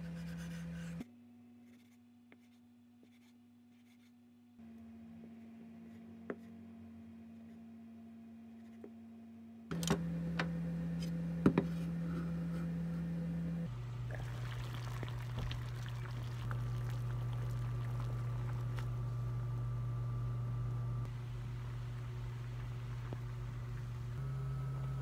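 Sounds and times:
low hum: 4.6 - 25.0
water boiling in a pot: 13.8 - 19.5, 21.2 - 24.2.

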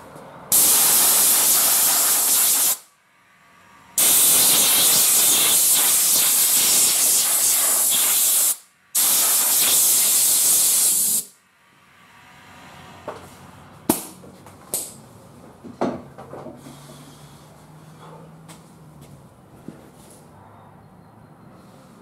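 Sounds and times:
air blow gun hissing: 0.5 - 2.9, 4.0 - 11.3.

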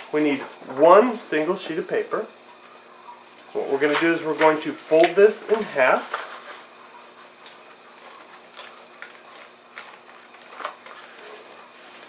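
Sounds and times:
paper rustling: 3.3 - 12.0.

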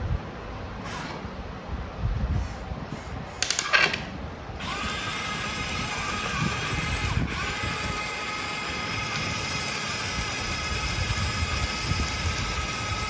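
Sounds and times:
electric motor and gearbox whining: 4.6 - 13.0.

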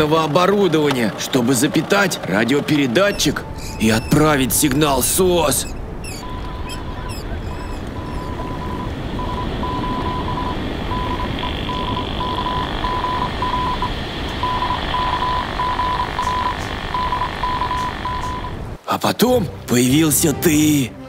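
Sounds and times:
constant hiss: 2.7 - 21.0
morse code beeps: 3.1 - 18.6.

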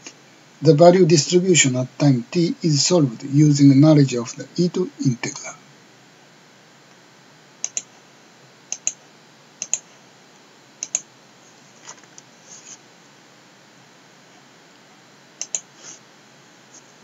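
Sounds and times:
computer mouse button clicking: 7.6 - 7.9, 9.6 - 9.8, 10.8 - 11.0, 15.4 - 15.7.

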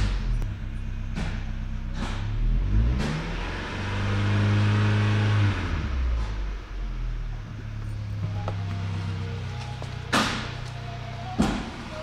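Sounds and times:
car engine idling and revving: 0.0 - 12.0.

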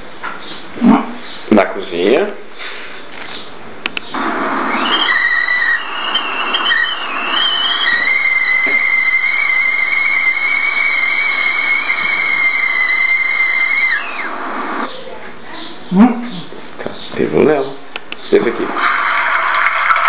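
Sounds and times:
stovetop kettle whistling: 4.2 - 14.9.

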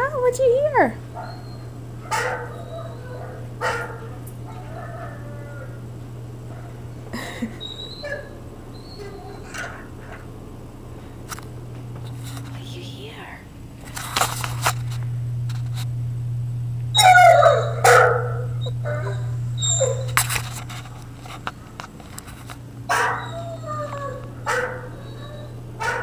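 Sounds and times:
dog whining and barking: 1.1 - 5.8, 7.5 - 10.2, 16.9 - 20.2, 22.9 - 26.0.

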